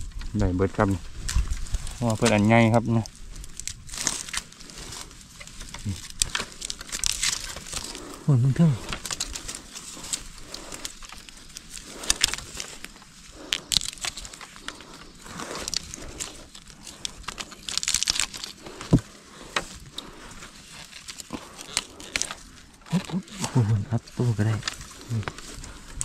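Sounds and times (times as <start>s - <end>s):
dry bamboo crackling and snapping: 0.0s - 26.0s.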